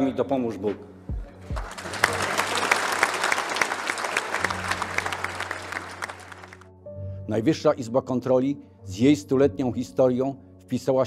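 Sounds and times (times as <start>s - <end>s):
crowd applauding: 1.4s - 6.7s.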